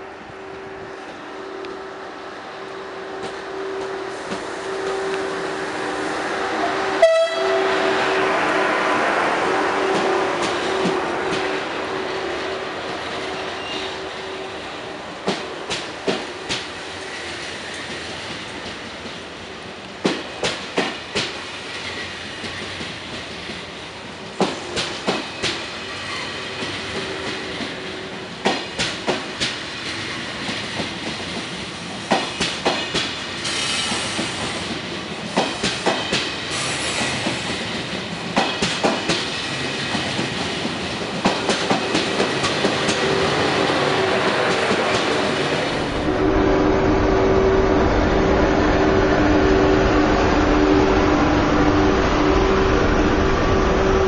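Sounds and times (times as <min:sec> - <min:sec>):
train power car hum: 0:00.0 - 0:54.0
train wheels clickety-clack: 0:09.8 - 0:14.3, 0:15.2 - 0:45.8.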